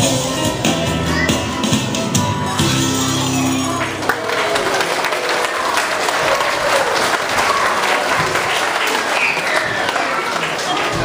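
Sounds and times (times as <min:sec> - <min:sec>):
children's song held note: 0:00.0 - 0:05.8
audience applause: 0:03.6 - 0:11.0.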